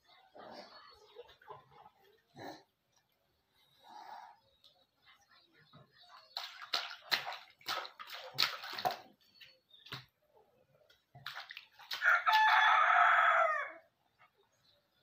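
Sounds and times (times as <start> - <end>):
water splashing in plastic tub: 5.8 - 10.2, 10.9 - 13.2
rooster crowing: 12.0 - 13.8.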